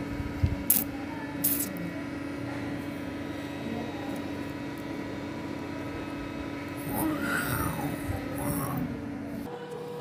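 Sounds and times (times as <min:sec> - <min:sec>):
steady hum: 0:00.0 - 0:10.0.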